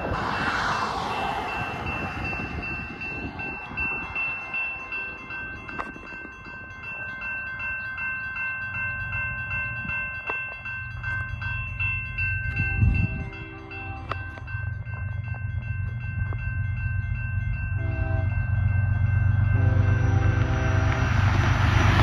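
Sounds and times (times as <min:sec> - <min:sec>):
wind buffeting microphone: 0:00.0 - 0:08.0, 0:08.8 - 0:18.2
crossing warning bell ringing: 0:00.0 - 0:22.0.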